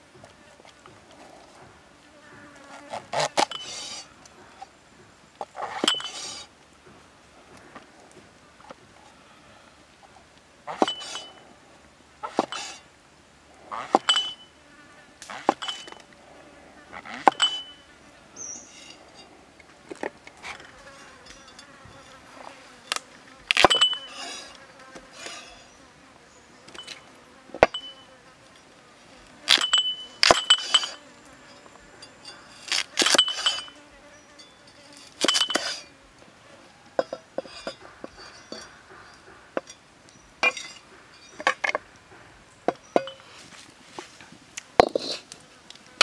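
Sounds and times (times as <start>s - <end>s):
insects buzzing faintly: 0.0s - 46.0s
metallic ring of blade: 14.1s - 14.5s, 17.3s - 17.9s, 23.6s - 24.5s, 29.6s - 33.8s.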